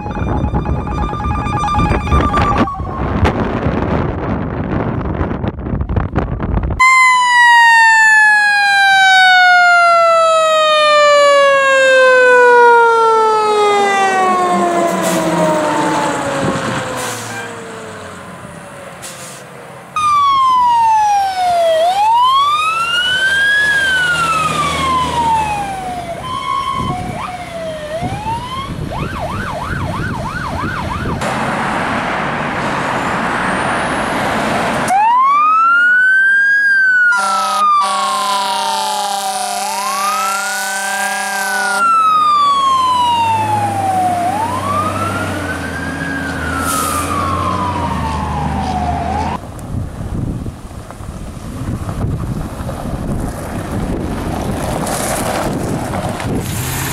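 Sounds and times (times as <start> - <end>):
steady horn-like tone: 0.0 - 2.6, 37.2 - 39.6, 40.5 - 41.8
mechanical siren winding down: 0.0 - 3.9, 6.8 - 17.3, 20.0 - 31.2, 34.8 - 49.4
electronic siren wailing: 0.0 - 4.0, 6.8 - 17.4, 20.0 - 31.2, 34.9 - 49.4
fast siren yelp: 0.0 - 4.0, 6.8 - 17.5, 20.0 - 31.2, 34.9 - 49.4.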